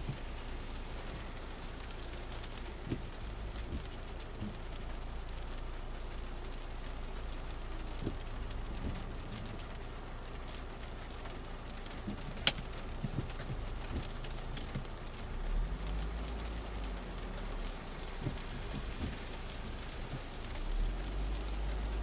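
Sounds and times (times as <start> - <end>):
heavy rain on car roof: 0.0 - 22.0
low rumble: 0.0 - 22.0.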